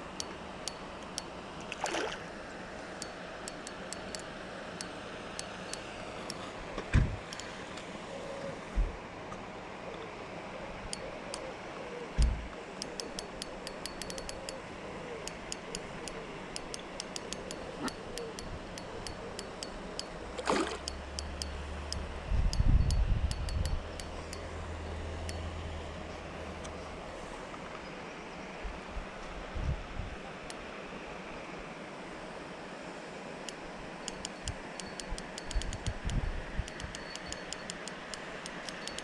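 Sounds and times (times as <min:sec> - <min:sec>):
fishing reel ticking: 0:12.8 - 0:14.6, 0:15.3 - 0:24.6, 0:34.1 - 0:39.0
fish splashing at surface: 0:20.4 - 0:20.8.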